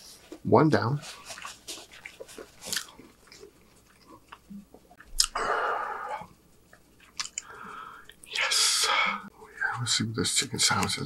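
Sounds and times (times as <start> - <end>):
man chewing: 1.0 - 8.5.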